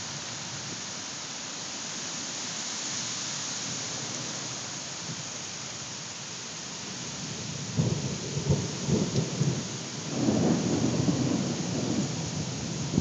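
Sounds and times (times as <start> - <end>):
steady rain hissing: 0.0 - 13.0
thunder rumbling: 7.7 - 13.0.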